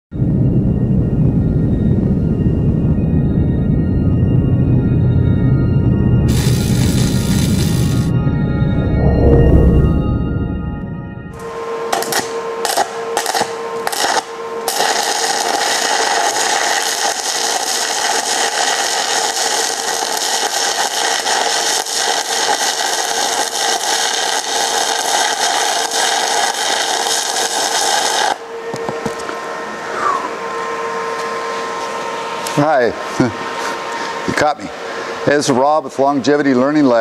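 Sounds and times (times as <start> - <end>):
welding arc crackling: 6.3 - 8.1, 12.0 - 28.4
steady hum: 8.0 - 11.7.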